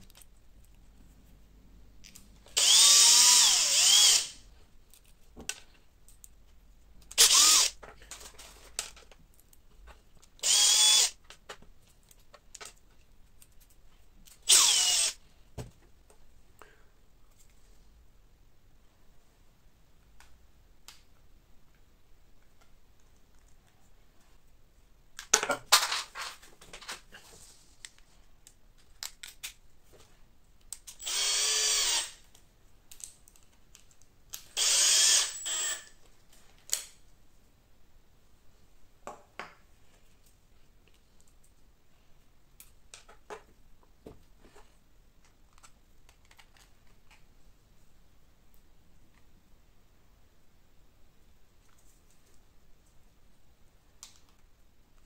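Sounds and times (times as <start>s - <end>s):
cordless drill driving screws: 2.6s - 4.4s, 7.2s - 7.8s, 10.4s - 11.2s, 14.5s - 15.2s, 31.0s - 32.2s, 34.6s - 36.0s
plastic parts clicking and knocking: 7.0s - 10.4s, 25.2s - 27.0s.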